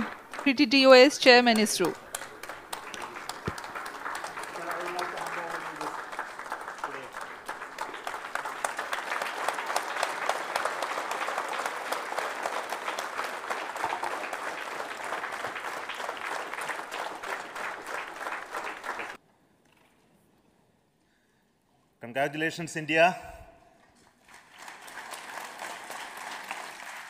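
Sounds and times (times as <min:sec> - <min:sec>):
crowd applauding: 0:00.0 - 0:19.2, 0:23.9 - 0:27.0.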